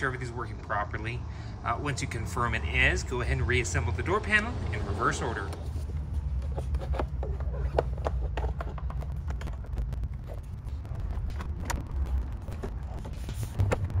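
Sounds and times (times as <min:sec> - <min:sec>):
steady low hum: 0:05.5 - 0:14.0.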